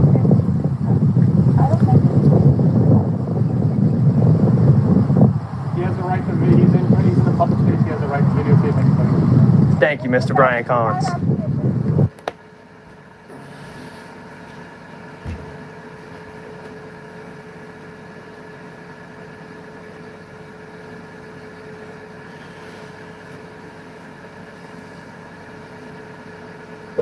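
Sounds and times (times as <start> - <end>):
steady mechanical hum: 0.0 - 27.0
short thump: 15.2 - 15.6.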